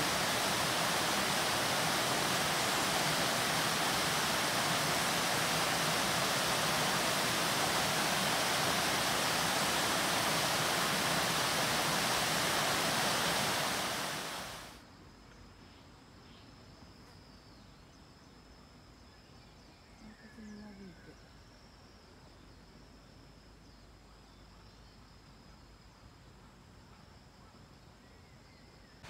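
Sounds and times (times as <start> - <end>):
water rushing over weir: 0.0 - 14.8.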